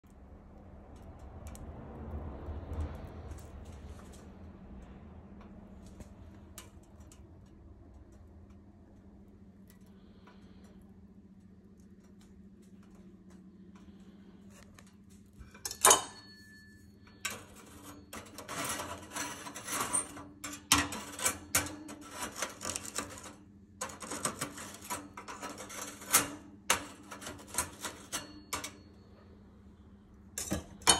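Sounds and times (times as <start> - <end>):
utensil scraping in toaster: 17.1 - 28.9.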